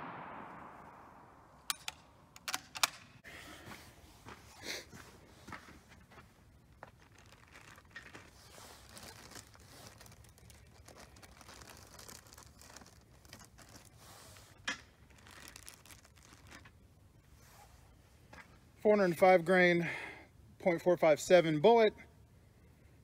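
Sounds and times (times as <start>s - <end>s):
rifle mechanism clicks: 1.7s - 3.1s
paper rustling: 6.7s - 16.8s.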